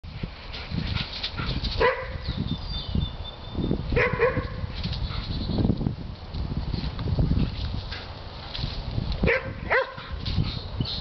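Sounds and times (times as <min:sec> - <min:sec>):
dogs barking playfully: 0:00.9 - 0:02.4, 0:03.9 - 0:05.3, 0:09.2 - 0:10.6.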